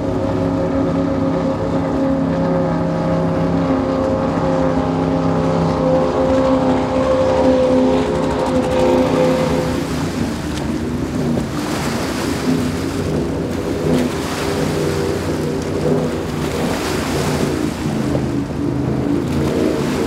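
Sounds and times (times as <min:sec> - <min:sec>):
powerboat engine drone: 0:00.0 - 0:20.0
hull and spray hissing on water: 0:11.4 - 0:18.1.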